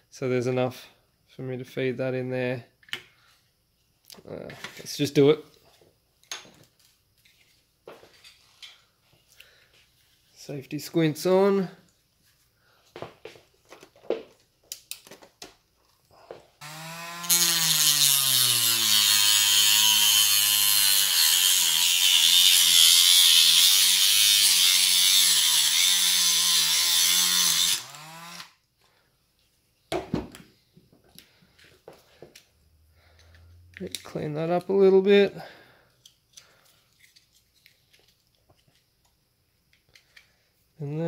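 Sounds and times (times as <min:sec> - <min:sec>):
rotary tool grinding hiss: 0:16.6 - 0:28.6.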